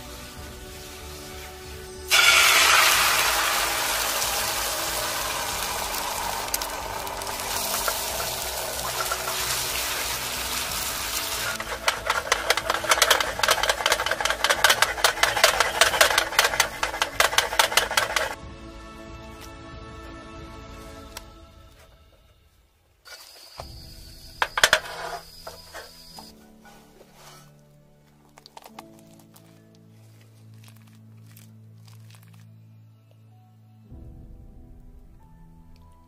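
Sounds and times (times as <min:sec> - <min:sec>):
egg sizzling in a frying pan: 0:00.0 - 0:18.4, 0:23.1 - 0:26.2
chopsticks scraping and clicking in pan: 0:06.4 - 0:18.4, 0:24.4 - 0:27.6.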